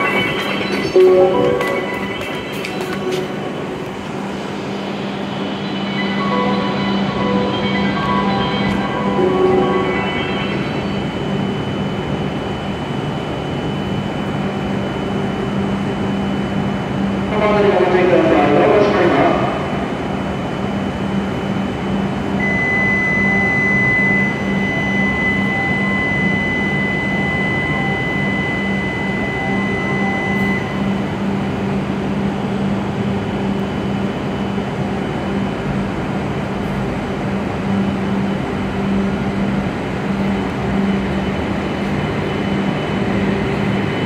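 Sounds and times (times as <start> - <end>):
high electronic tone: 0.0 - 13.3
train equipment low hum: 0.0 - 44.0.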